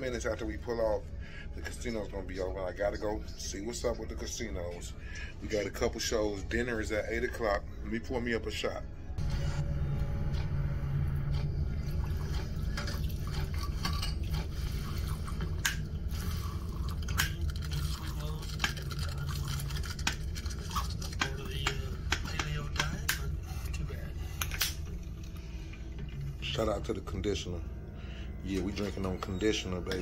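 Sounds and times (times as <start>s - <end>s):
low hum: 8.8s - 30.0s
liquid trickling into glass: 11.8s - 21.1s.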